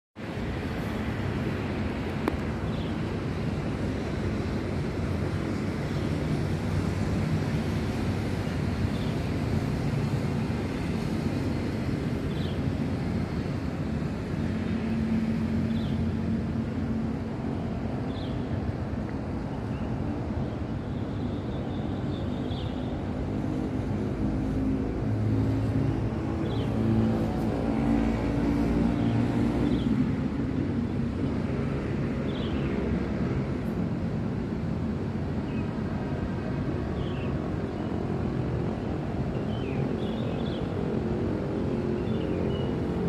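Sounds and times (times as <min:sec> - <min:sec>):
distant traffic rumble: 0:00.2 - 0:43.0.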